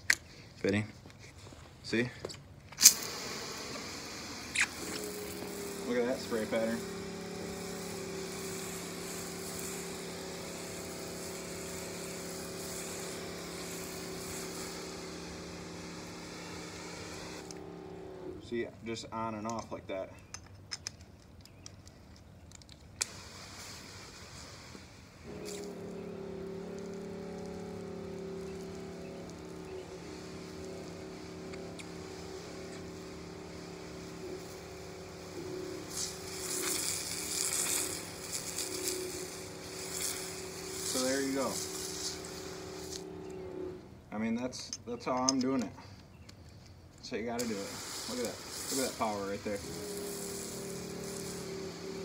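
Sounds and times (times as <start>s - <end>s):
water spray hissing on concrete: 2.8s - 18.4s, 23.0s - 43.8s, 47.2s - 52.0s
pump humming: 2.8s - 19.2s, 23.0s - 44.2s, 47.3s - 52.0s.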